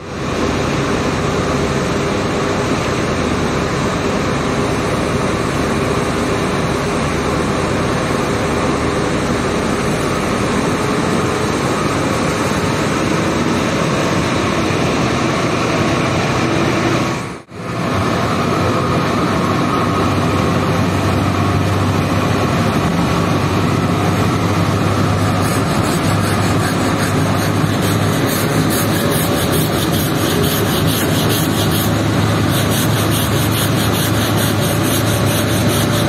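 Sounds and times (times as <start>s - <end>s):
steady low hum: 0.0s - 36.0s
hand brush scrubbing wet rug: 25.0s - 36.0s.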